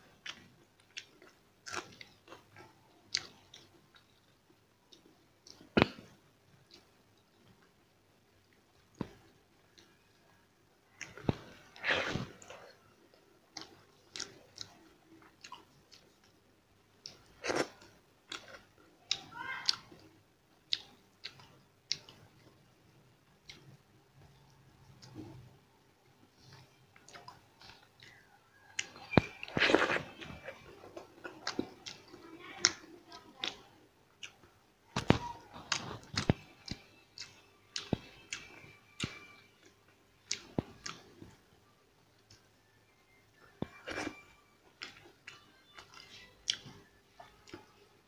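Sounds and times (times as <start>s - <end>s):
chewing and lip-smacking: 0.2s - 6.0s, 10.9s - 16.4s, 17.0s - 20.1s, 20.7s - 22.6s, 26.3s - 41.4s, 43.3s - 47.8s.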